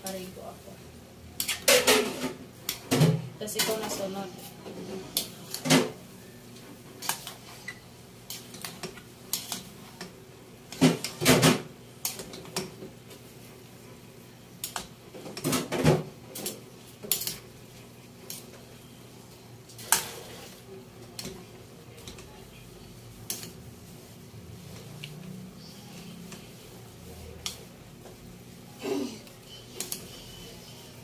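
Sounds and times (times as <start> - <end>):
metal cookware clanking and scraping: 1.4 - 6.0.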